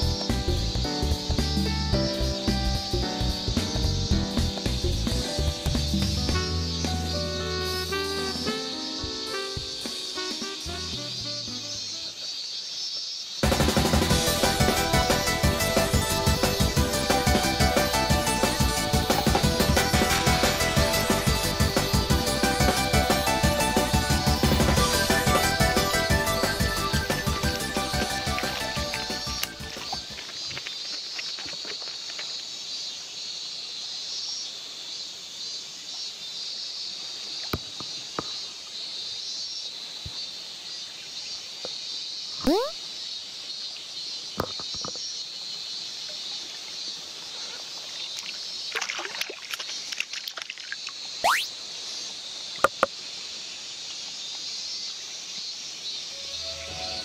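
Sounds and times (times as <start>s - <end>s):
water sloshing: 48.2s - 50.8s.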